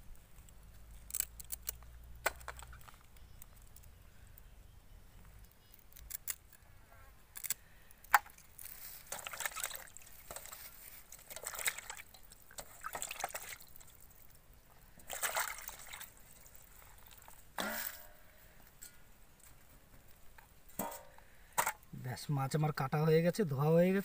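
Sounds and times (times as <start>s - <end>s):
water splashing in a steel plate: 9.1s - 14.2s, 15.0s - 18.2s.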